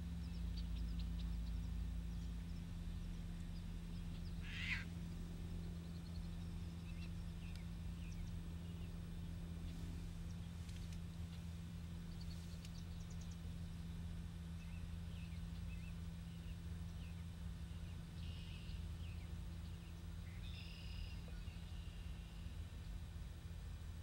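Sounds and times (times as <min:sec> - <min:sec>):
small birds chirping: 0:00.0 - 0:23.1
steady low hum: 0:00.0 - 0:24.0
buzzy bird call: 0:04.2 - 0:04.9.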